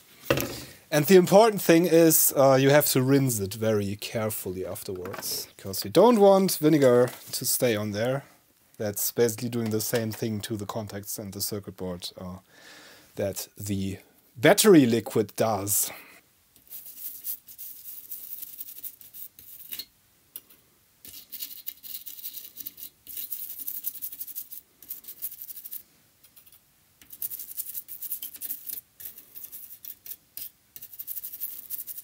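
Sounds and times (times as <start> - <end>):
toothbrush scrubbing circuit board: 16.6 - 19.8, 21.0 - 32.0.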